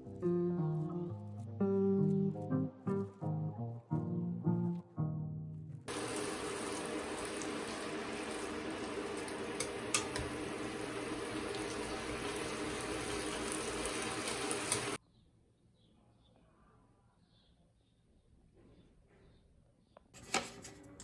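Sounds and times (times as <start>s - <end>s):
running water: 5.9s - 15.0s.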